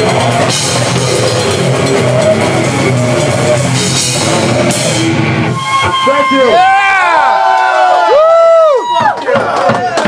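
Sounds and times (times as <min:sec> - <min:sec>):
grindcore band playing live: 0:00.0 - 0:06.8.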